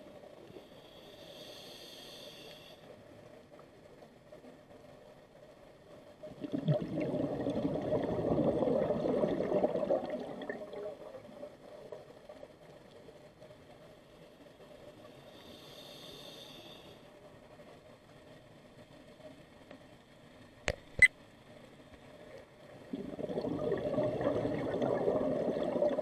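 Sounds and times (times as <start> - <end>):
faint steady hiss: 0.0 - 26.0
regulator exhaust bubbles gurgling: 6.3 - 11.2, 22.9 - 26.0.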